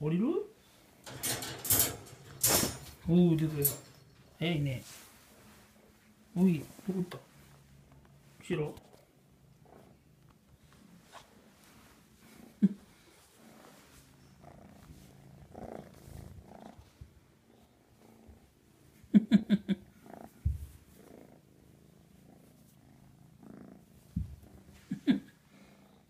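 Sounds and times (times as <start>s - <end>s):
kitten purring: 5.4s - 26.0s.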